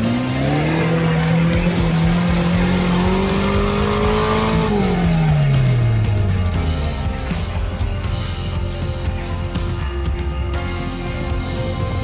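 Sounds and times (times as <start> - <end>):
off-road vehicle engine revving: 0.0 - 7.7.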